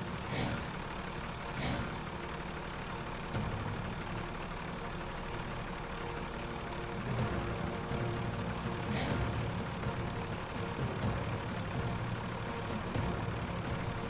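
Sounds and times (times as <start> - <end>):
truck engine idling: 0.0 - 14.0.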